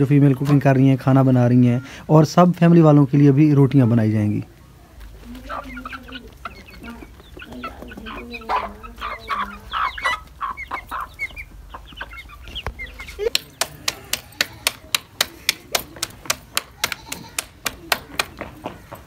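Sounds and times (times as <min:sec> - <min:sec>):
chickens clucking and cheeping: 0:04.4 - 0:19.0
hands slapping dough: 0:13.3 - 0:18.5.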